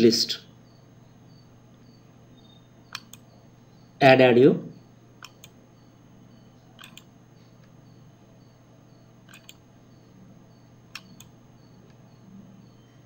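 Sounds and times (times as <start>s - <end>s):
low steady hum: 0.0s - 13.0s
computer mouse clicks: 2.9s - 3.3s, 5.2s - 5.6s, 6.8s - 7.8s, 9.3s - 9.6s, 10.9s - 12.0s.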